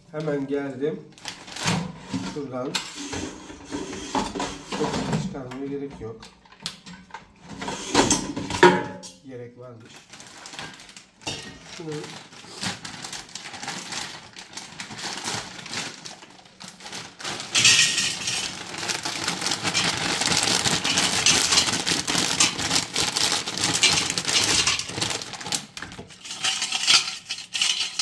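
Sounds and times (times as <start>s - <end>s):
frozen fries rattling into basket: 9.9s - 28.0s.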